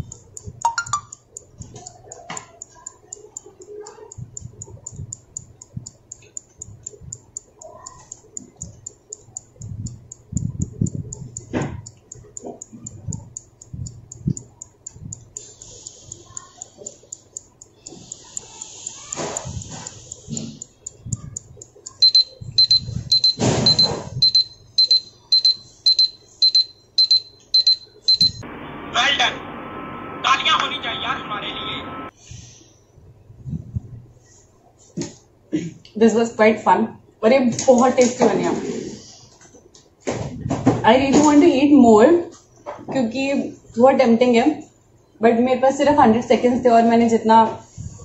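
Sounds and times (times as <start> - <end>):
countdown timer ticking: 0.0 - 28.5.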